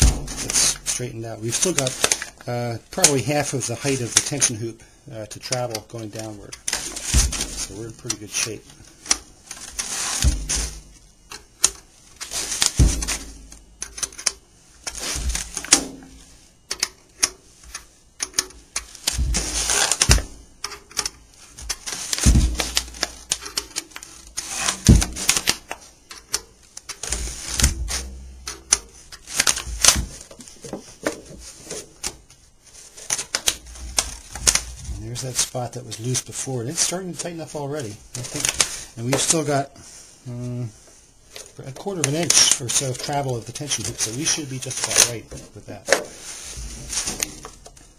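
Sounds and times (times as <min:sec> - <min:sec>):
dull thumps: 0:00.0 - 0:02.3, 0:06.6 - 0:11.5, 0:12.3 - 0:13.8, 0:14.8 - 0:16.5, 0:18.9 - 0:20.6, 0:21.6 - 0:23.4, 0:24.3 - 0:25.8, 0:27.0 - 0:32.3
sheet rustling: 0:37.8 - 0:47.9.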